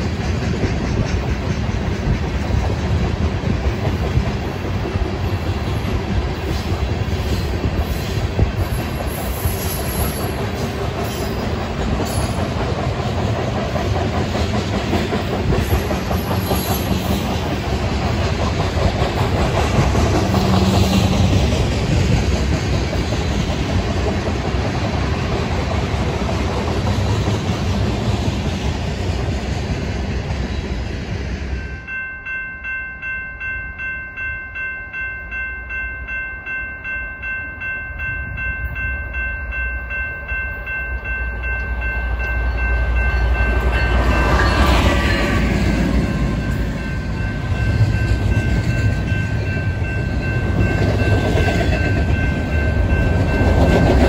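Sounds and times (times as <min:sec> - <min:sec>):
freight train rumbling past: 0:00.0 - 0:54.0.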